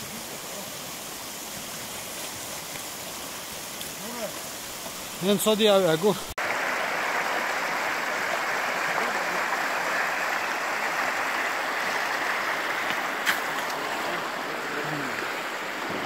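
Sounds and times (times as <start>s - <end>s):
mountain stream rushing: 0.0s - 16.0s.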